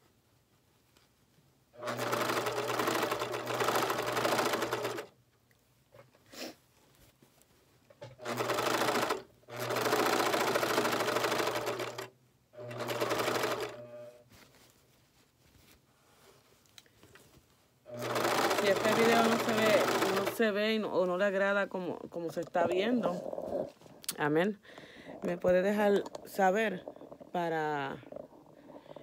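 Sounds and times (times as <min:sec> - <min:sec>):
serger sewing machine stitching: 0:01.8 - 0:05.1, 0:08.0 - 0:14.1, 0:17.9 - 0:20.6.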